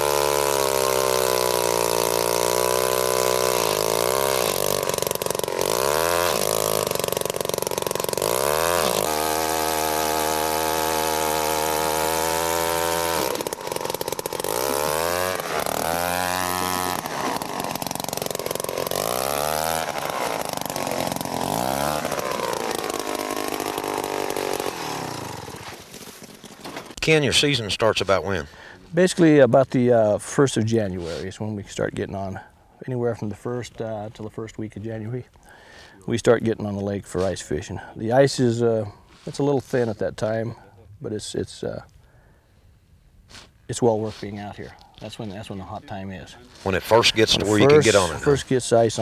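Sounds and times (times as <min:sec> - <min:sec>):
ice auger engine drilling: 0:00.0 - 0:27.0, 0:46.5 - 0:48.5.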